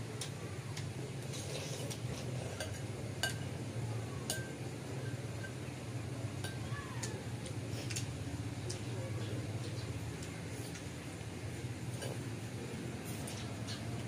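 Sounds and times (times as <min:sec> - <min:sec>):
spoons clinking on ceramic bowls: 0:02.5 - 0:03.6.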